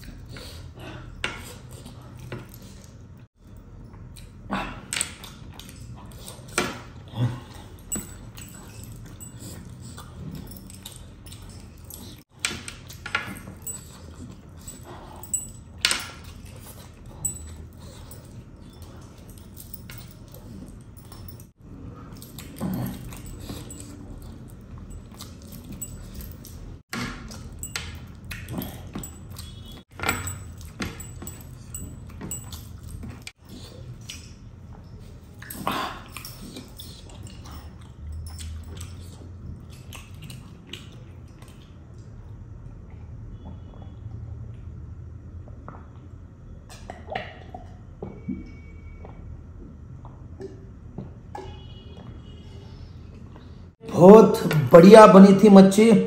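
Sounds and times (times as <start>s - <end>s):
metal bracelets jangling: 7.6s - 33.4s, 35.4s - 39.1s.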